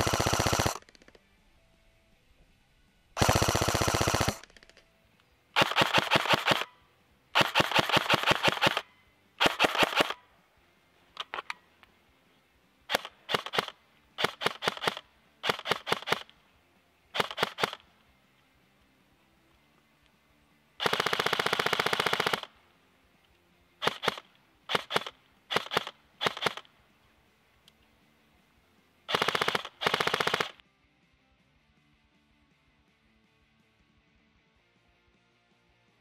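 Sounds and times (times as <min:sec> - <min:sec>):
airsoft gun firing bursts: 0:00.0 - 0:01.2, 0:03.2 - 0:04.8, 0:05.6 - 0:06.8, 0:07.4 - 0:10.2, 0:12.9 - 0:16.3, 0:17.1 - 0:17.9, 0:20.8 - 0:22.6, 0:23.8 - 0:26.7, 0:29.1 - 0:30.6.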